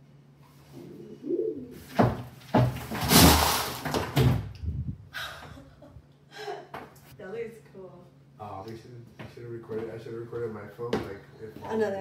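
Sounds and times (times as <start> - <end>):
plastic cubes tumbling and rattling: 2.6 - 4.4.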